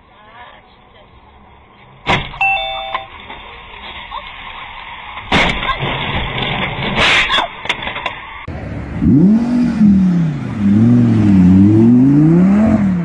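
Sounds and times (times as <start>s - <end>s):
road noise: 0.0s - 13.0s
car crash impacts: 5.2s - 8.3s.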